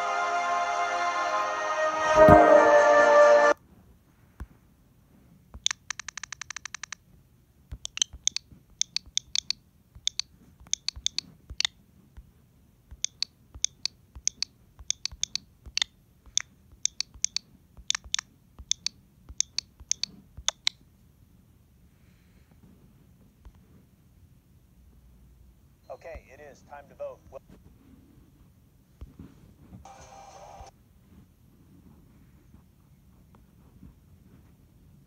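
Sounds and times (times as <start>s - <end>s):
music: 0.0s - 3.6s, 29.9s - 30.7s
keyboard typing clicks: 5.6s - 7.0s, 7.7s - 11.8s, 12.9s - 20.8s.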